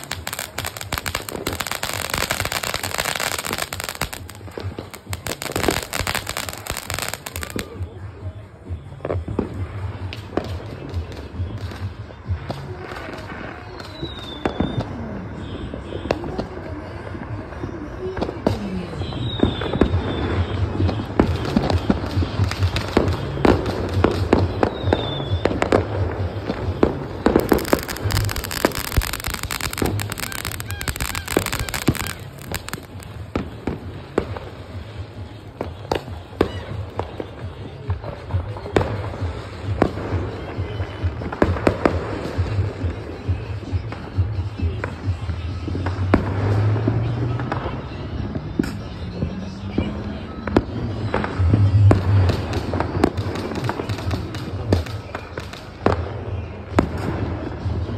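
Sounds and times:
fireworks booms: 0.0s - 7.8s, 21.2s - 34.8s
fireworks hissing: 0.0s - 7.8s, 27.1s - 33.8s
fireworks crackling and popping: 0.0s - 57.9s.

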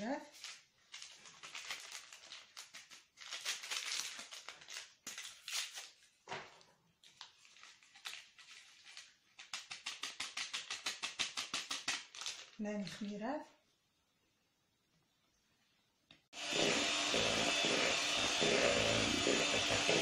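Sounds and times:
whisk beating batter in bowl: 16.4s - 20.0s.

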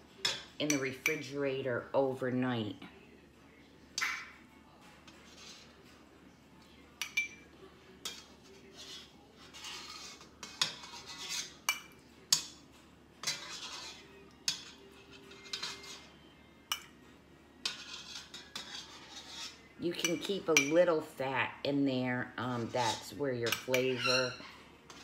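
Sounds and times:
metal spoon clinking on pot: 7.0s - 8.3s, 9.4s - 12.6s, 13.2s - 16.1s, 16.7s - 17.0s, 17.6s - 20.8s, 23.4s - 25.0s.

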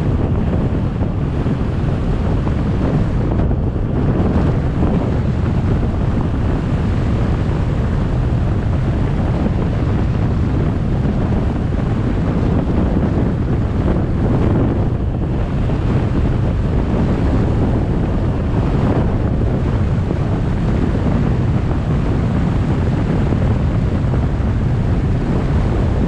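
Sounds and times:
wind rush on microphone: 0.0s - 26.0s.

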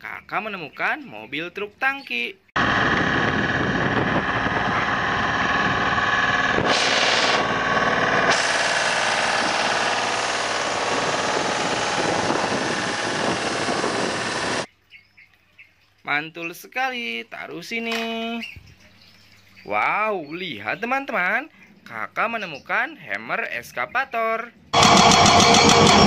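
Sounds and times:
truck engine running: 2.6s - 14.7s, 24.8s - 26.0s
water spray blasting pavement: 4.3s - 14.7s.

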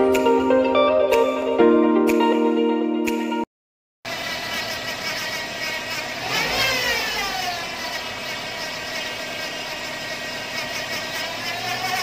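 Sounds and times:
engine running: 4.1s - 12.0s.

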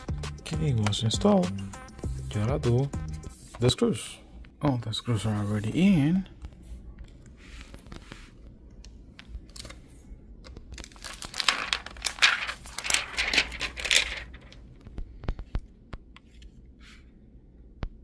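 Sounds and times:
plastic film peeling and crinkling: 10.4s - 14.9s.

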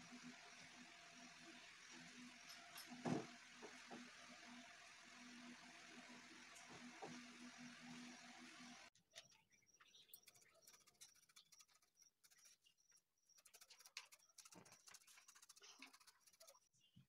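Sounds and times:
faint high chirp: 9.0s - 17.0s.

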